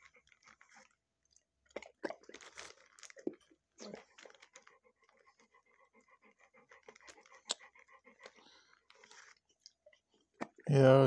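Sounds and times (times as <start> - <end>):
dog panting softly: 4.1 - 10.1.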